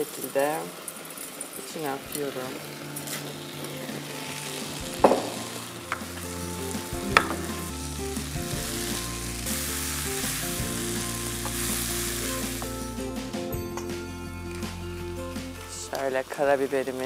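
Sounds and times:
vegetables sizzling in a pan: 0.0 - 13.1
spatula knocking on pan: 7.0 - 7.7.

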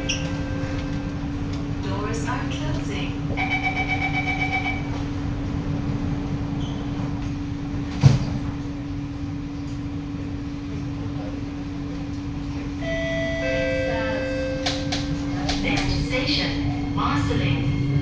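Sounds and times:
door-closing warning beeps: 0.0 - 1.0
train equipment humming: 0.0 - 18.0.

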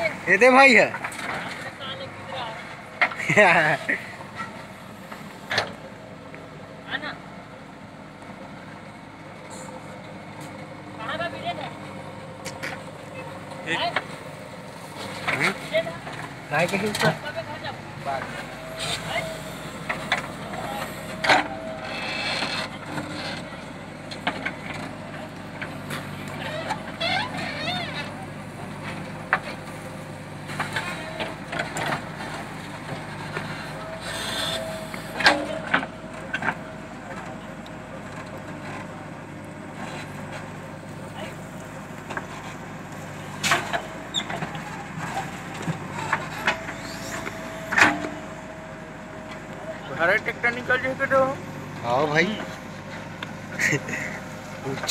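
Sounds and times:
diesel engine running: 0.0 - 54.9
steady whine: 9.5 - 26.5.

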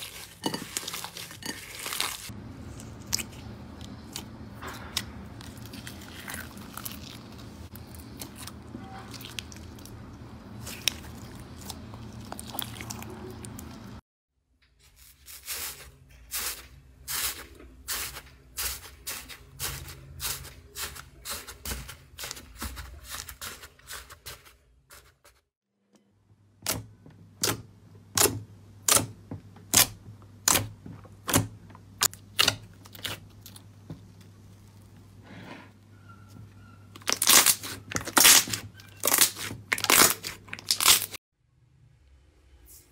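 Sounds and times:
dry slime crackling and crunching: 0.0 - 13.8, 36.9 - 41.2.

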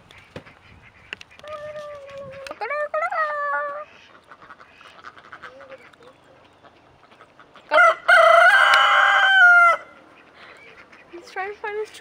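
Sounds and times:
rooster crowing: 7.7 - 10.0.

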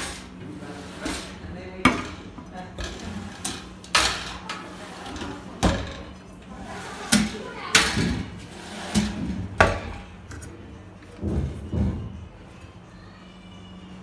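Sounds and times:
wire basket drawer sliding: 0.0 - 1.4, 2.8 - 9.7.

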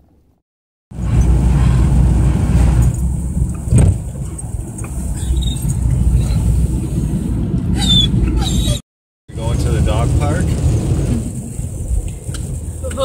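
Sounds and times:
car engine and tyres rumbling: 0.9 - 13.0
short thump: 3.6 - 4.1.

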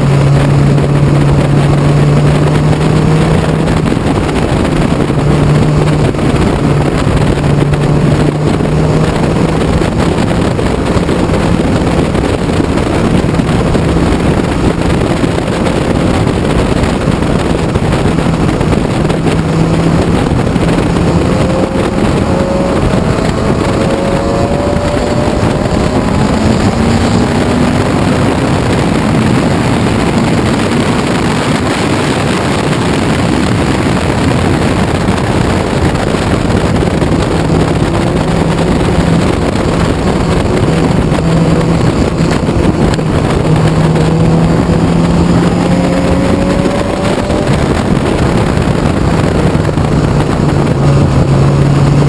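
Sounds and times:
race car engine accelerating: 0.0 - 52.0
wind rushing on microphone: 0.0 - 52.0.

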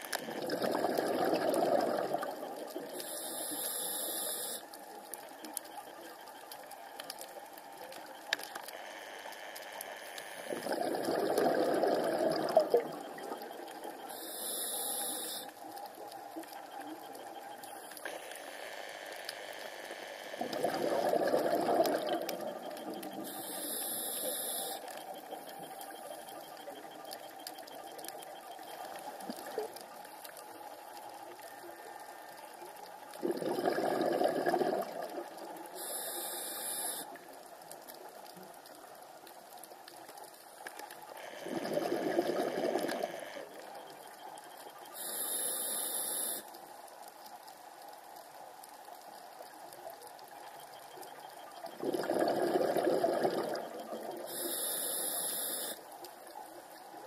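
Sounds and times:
steady underwater hiss: 0.0 - 57.0
bubbling exhalations: 0.3 - 2.4, 10.5 - 13.1, 20.5 - 22.5, 33.2 - 35.2, 51.7 - 54.2
regulator inhalation hiss: 3.0 - 4.6, 14.1 - 15.5, 23.3 - 24.8, 35.8 - 37.1, 45.0 - 46.4, 54.3 - 55.8.

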